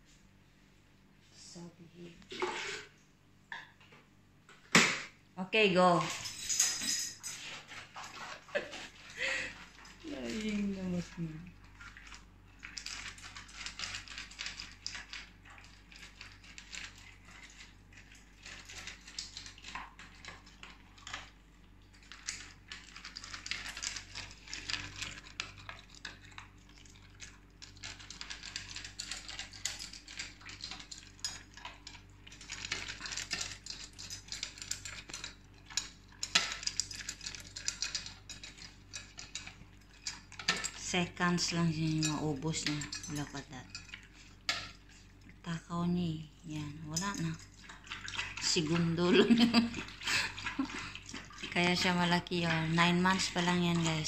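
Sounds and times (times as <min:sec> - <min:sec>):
kibble rattling in metal bowl: 0:08.6 - 0:45.2, 0:46.5 - 0:54.0
dog crunching dry kibble: 0:09.6 - 0:40.9.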